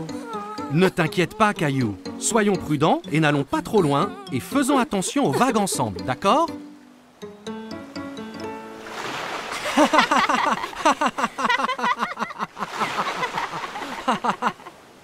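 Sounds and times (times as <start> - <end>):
plucked background music: 0.0 - 10.5
man and boy laughing: 4.8 - 5.8, 9.5 - 14.8
splashing sea water: 8.7 - 11.4, 12.4 - 15.0.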